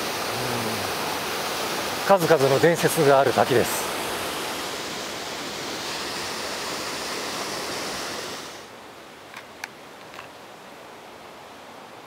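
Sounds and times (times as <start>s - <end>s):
waterfall rushing: 0.0s - 8.8s.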